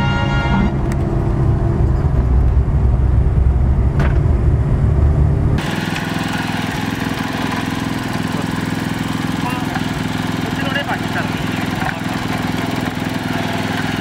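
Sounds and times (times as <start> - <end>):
heavy low engine rumble: 0.0 - 14.0
small engine buzzing: 5.6 - 14.0.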